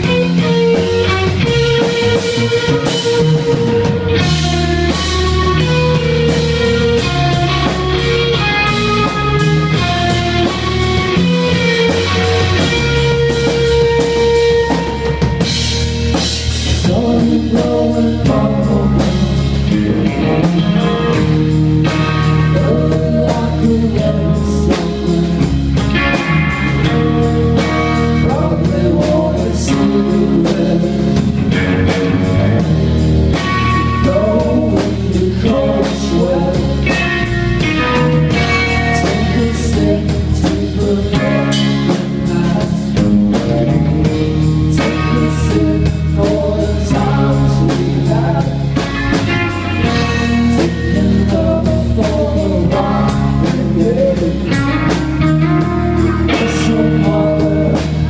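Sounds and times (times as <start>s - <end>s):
bass guitar: 0.0s - 58.0s
distorted electric guitars: 0.0s - 58.0s
drum kit: 0.0s - 58.0s
person singing: 16.6s - 58.0s.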